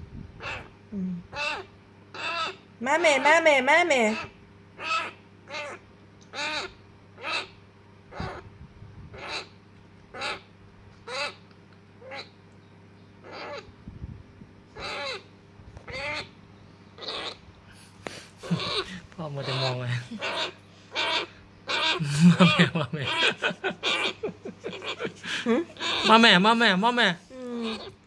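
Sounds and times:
parrot chick begging calls: 0.4s - 0.7s, 1.3s - 8.4s, 9.1s - 11.4s, 12.0s - 12.4s, 13.2s - 13.7s, 14.8s - 16.4s, 17.0s - 17.4s, 18.4s - 25.1s, 25.7s - 27.0s, 27.6s - 28.0s.

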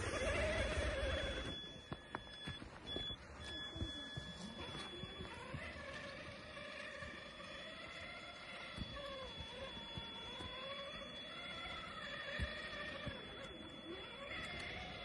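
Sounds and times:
electric motor and gearbox whine: 0.0s - 15.0s.

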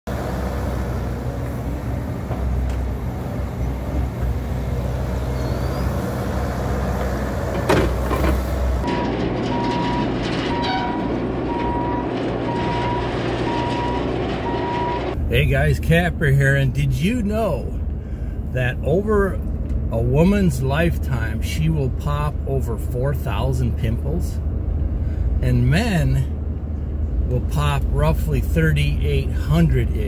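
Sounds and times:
excavator diesel engine running: 0.1s - 18.7s
track loader engine running: 0.1s - 30.0s
reverse alarm beeping: 8.8s - 15.2s.

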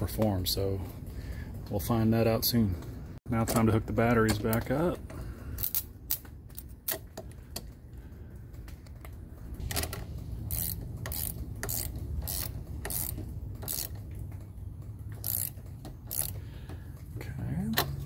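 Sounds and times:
hand ratchet clicking: 5.6s - 7.7s, 9.7s - 14.1s, 15.1s - 16.8s.

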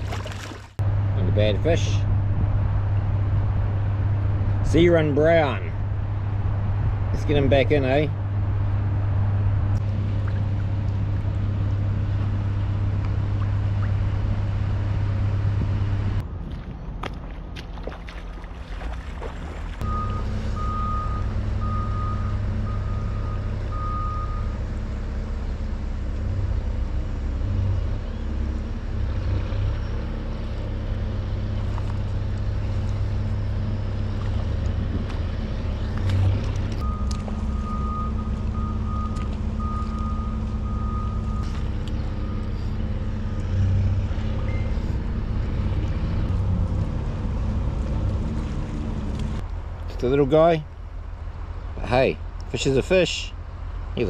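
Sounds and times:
heavy vehicle engine running: 0.7s - 17.6s, 18.5s - 54.0s
reversing alarm beeping: 19.8s - 24.6s, 36.8s - 42.6s.

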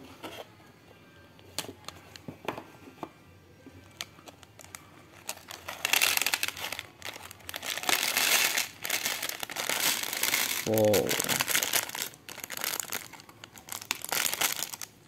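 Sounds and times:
plastic bag crinkling: 4.4s - 15.0s.

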